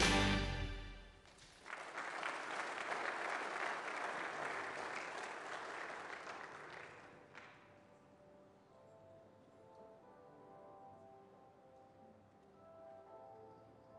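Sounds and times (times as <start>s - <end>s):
congregation applauding: 0.0s - 7.8s.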